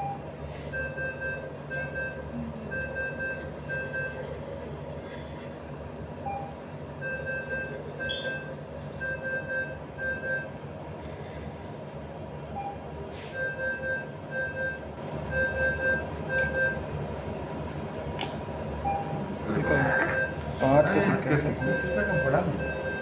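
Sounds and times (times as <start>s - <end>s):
steady machine hum: 0.0s - 23.0s
short electronic beeps: 6.3s - 10.5s.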